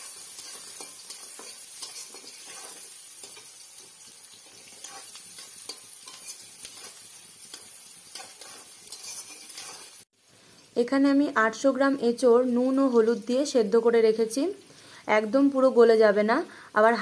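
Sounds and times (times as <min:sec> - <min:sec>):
metal spatula scraping pan: 0:00.0 - 0:03.5, 0:04.5 - 0:10.0
onion sizzling in hot oil: 0:00.0 - 0:17.0.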